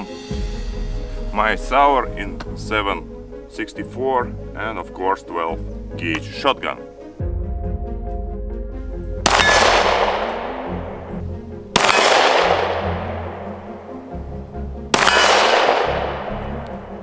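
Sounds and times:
background music: 0:00.0 - 0:17.0
pistol shots: 0:09.2 - 0:14.0, 0:14.9 - 0:17.0.

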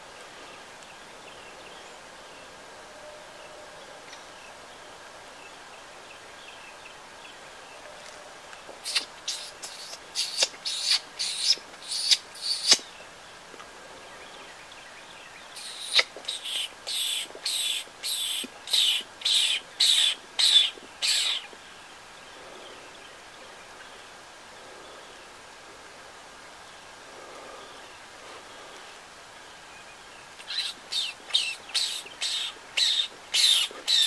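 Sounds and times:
faint outdoor background: 0:00.0 - 0:34.0
short hissy noises: 0:08.8 - 0:12.9, 0:15.6 - 0:21.2.

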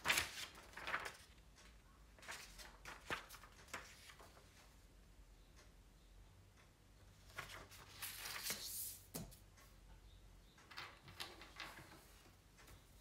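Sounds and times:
paper rustling: 0:00.0 - 0:04.6, 0:07.3 - 0:09.3.

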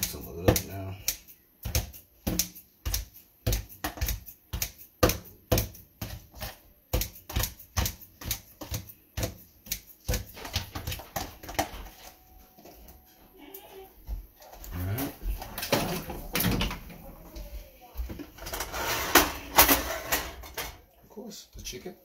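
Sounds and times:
kitchen knocks and clicks: 0:00.0 - 0:12.1, 0:15.4 - 0:17.1, 0:18.1 - 0:20.9.

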